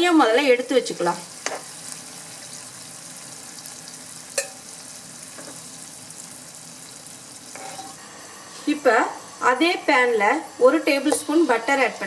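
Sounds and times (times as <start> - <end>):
chicken sizzling in oil: 0.0 - 8.0.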